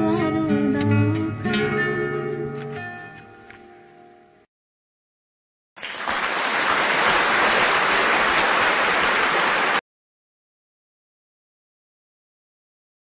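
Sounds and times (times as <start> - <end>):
guitar-accompanied song: 0.0 - 4.0.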